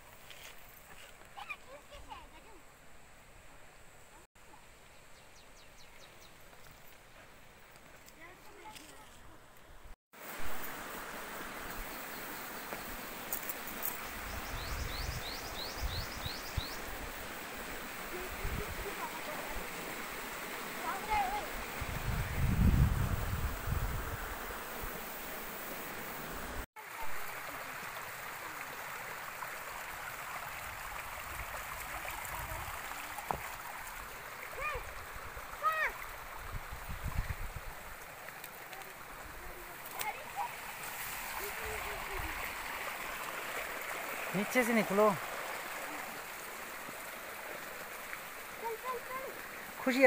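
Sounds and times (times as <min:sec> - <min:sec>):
outdoor rushing hiss: 0:10.2 - 0:27.0, 0:31.8 - 0:50.0.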